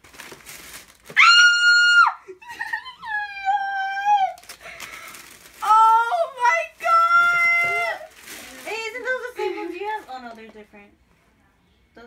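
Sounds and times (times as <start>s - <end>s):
girl squealing with excitement: 1.2s - 4.4s.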